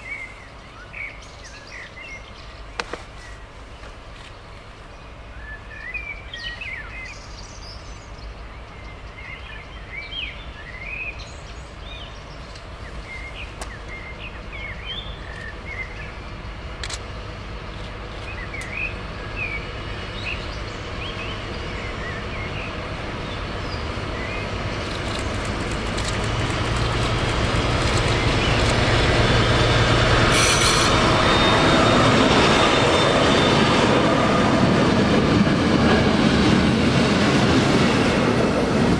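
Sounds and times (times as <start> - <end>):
diesel locomotive engines: 0.0 - 38.9
rumble of freight wagons: 10.4 - 38.9.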